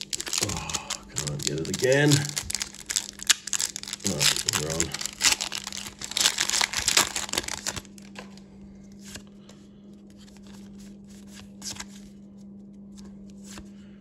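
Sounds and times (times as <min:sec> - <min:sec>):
cards clicking and rustling: 0:00.0 - 0:08.4
foil wrapper tearing and crinkling: 0:00.0 - 0:08.4
steady low hum: 0:00.0 - 0:14.0.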